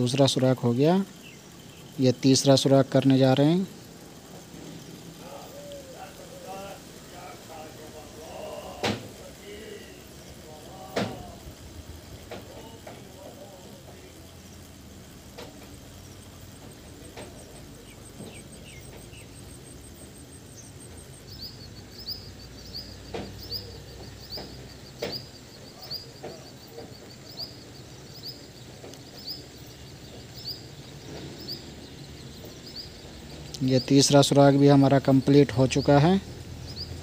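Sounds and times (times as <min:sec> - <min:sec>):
faint clicks: 0:04.1 - 0:09.4, 0:10.1 - 0:19.5, 0:21.3 - 0:31.6.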